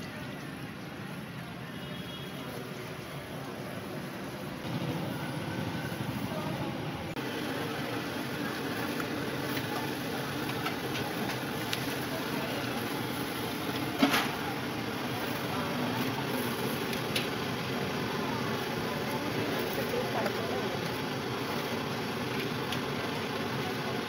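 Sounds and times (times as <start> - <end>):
food frying in hot oil: 7.2 - 24.0.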